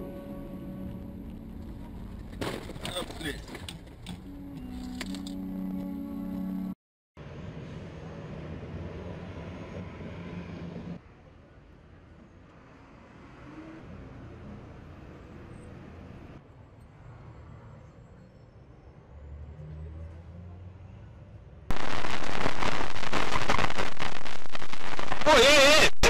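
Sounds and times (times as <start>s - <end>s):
faint street noise rumble: 0.0s - 23.2s
loud harsh crackling: 21.7s - 26.0s.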